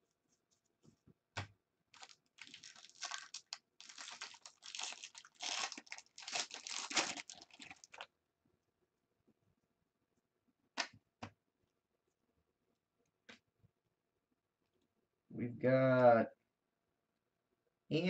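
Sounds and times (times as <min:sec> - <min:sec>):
foil wrapper crinkling and tearing: 0:02.0 - 0:08.0.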